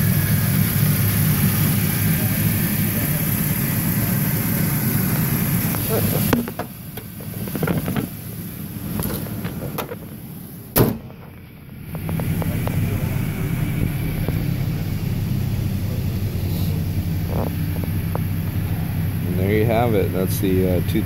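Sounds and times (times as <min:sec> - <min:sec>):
truck engine idling: 0:00.0 - 0:21.0
hood slamming shut: 0:05.7 - 0:08.2, 0:08.9 - 0:14.9.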